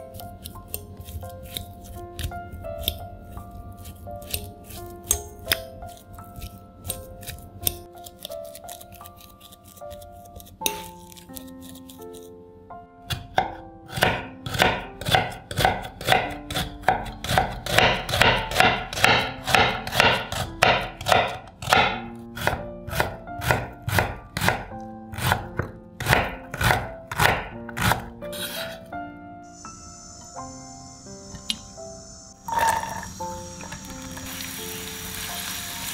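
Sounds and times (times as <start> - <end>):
knife chopping on wooden board: 13.1 - 28.8.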